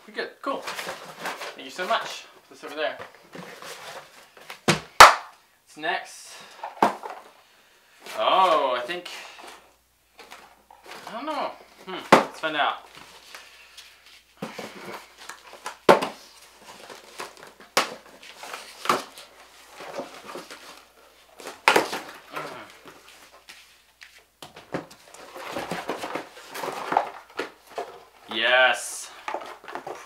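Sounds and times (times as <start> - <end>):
cardboard flaps rustling: 10.2 - 30.0.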